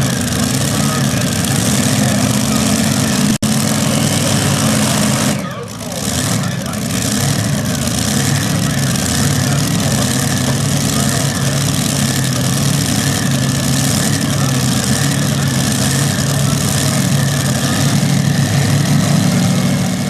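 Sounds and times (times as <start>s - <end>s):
tractor engines idling: 0.0s - 20.0s.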